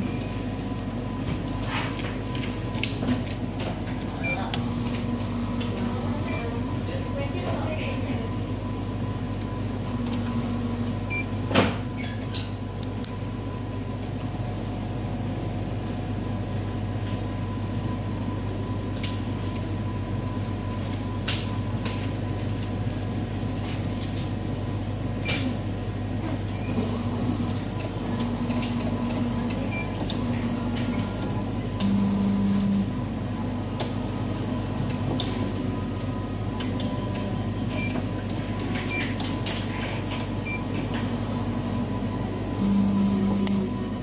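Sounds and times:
machine hum: 0:02.2 - 0:11.5, 0:24.4 - 0:44.0
short keypad beeps: 0:10.0 - 0:11.4, 0:28.5 - 0:30.6, 0:37.7 - 0:38.1, 0:40.4 - 0:40.8, 0:42.6 - 0:43.8.

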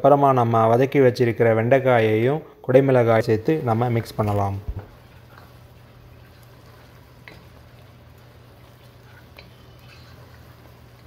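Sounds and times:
gravy popping: 0:04.2 - 0:11.0.

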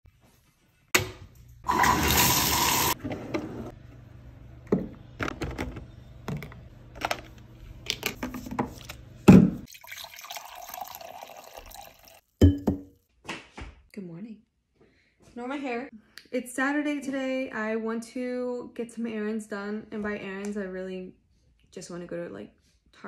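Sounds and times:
running water: 0:01.7 - 0:03.0
coffee pouring into mug: 0:09.7 - 0:12.2.

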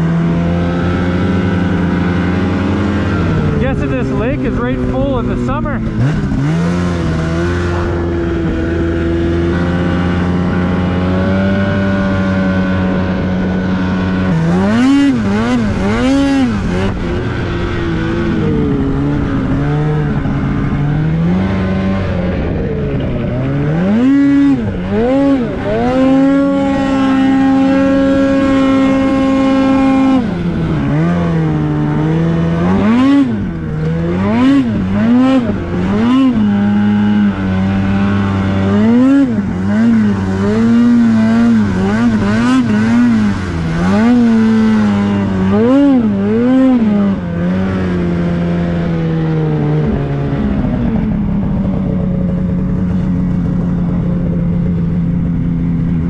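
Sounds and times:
snowmobile engine revving: 0:00.0 - 0:56.0.

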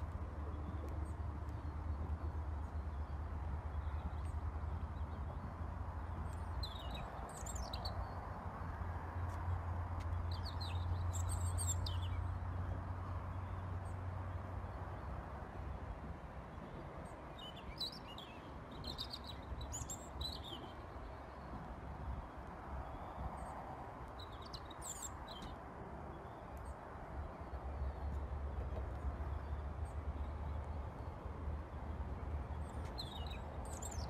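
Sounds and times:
small birds chirping: 0:03.8 - 0:08.2, 0:10.1 - 0:12.3, 0:17.3 - 0:20.8, 0:24.1 - 0:25.6, 0:32.5 - 0:34.0.

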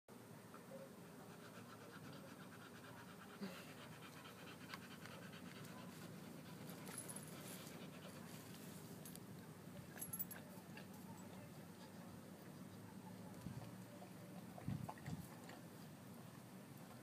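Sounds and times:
dog panting: 0:01.1 - 0:08.5.

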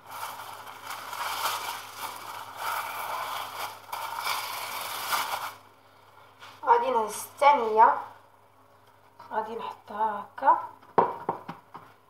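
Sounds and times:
pastry sheets rustling: 0:00.0 - 0:05.7.

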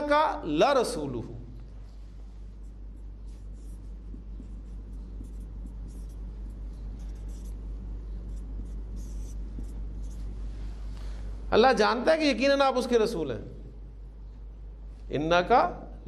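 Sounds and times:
marker pen on whiteboard: 0:02.3 - 0:10.6.

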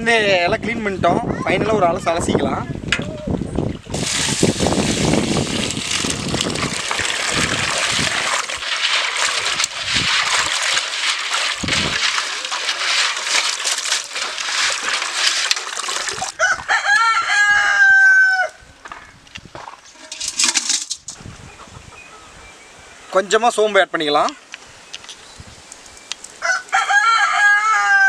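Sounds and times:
water splashing into metal basin: 0:03.9 - 0:16.4, 0:20.0 - 0:21.2
rooster crowing: 0:16.4 - 0:18.6, 0:26.4 - 0:28.0.

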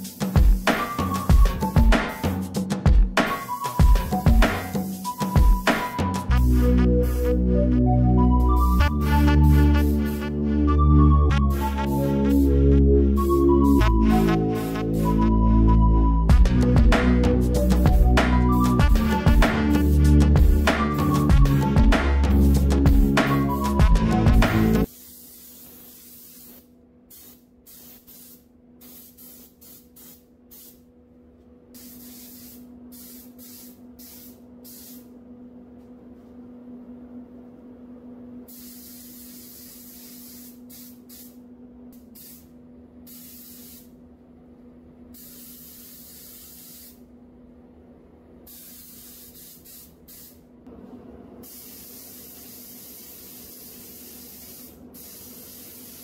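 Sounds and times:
spray gun hissing: 0:00.0 - 0:02.4, 0:03.3 - 0:07.4, 0:08.5 - 0:10.4, 0:13.2 - 0:15.2, 0:17.1 - 0:30.8, 0:31.8 - 0:35.1, 0:38.5 - 0:41.4, 0:42.0 - 0:42.5, 0:43.1 - 0:43.9, 0:45.2 - 0:47.0, 0:48.5 - 0:50.4, 0:51.4 - 0:56.0.

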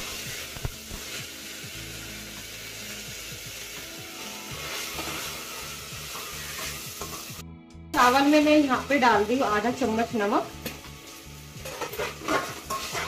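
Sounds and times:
rice sizzling in a pot: 0:00.0 - 0:07.4, 0:08.0 - 0:13.0
metal spoon stirring: 0:11.6 - 0:13.0.

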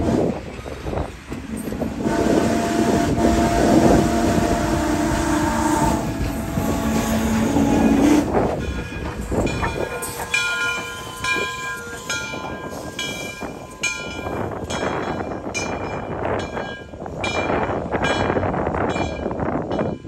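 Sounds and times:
steam locomotive whistle: 0:01.9 - 0:08.5
wheels clacking over rail joints: 0:04.4 - 0:20.0.

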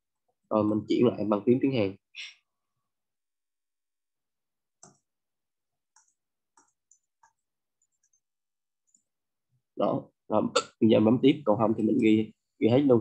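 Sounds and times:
computer mouse clicks: 0:04.8 - 0:05.1.

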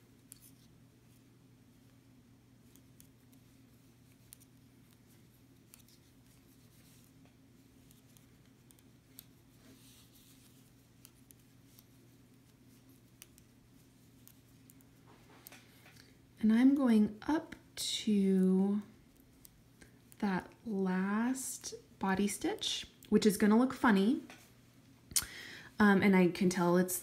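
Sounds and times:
knitting needles clicking: 0:00.2 - 0:01.2, 0:02.6 - 0:16.1, 0:19.1 - 0:20.2.

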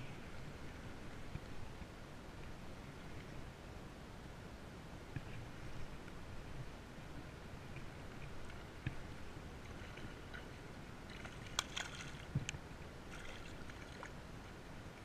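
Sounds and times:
fish splashing in water: 0:11.1 - 0:12.4, 0:13.1 - 0:14.1.

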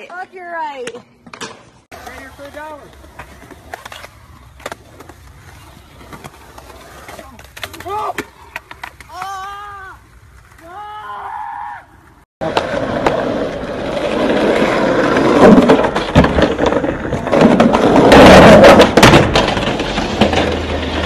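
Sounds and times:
skateboards clacking and slapping: 0:00.0 - 0:10.9, 0:12.4 - 0:21.0
skateboard wheels rolling: 0:00.0 - 0:21.0
boards hitting the ground: 0:07.1 - 0:09.6, 0:15.0 - 0:21.0.

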